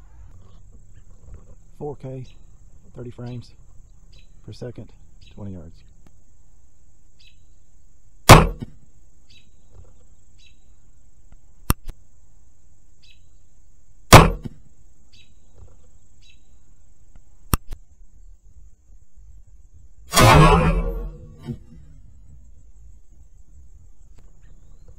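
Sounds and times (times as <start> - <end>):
crossbow string cracks: 11.6 - 12.0, 17.5 - 17.8.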